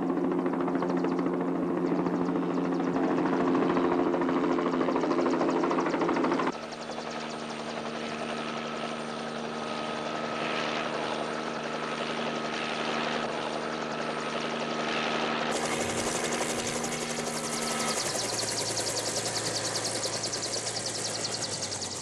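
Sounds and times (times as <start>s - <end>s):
helicopter engine and rotor: 0.0s - 22.0s
high whine: 15.5s - 22.0s.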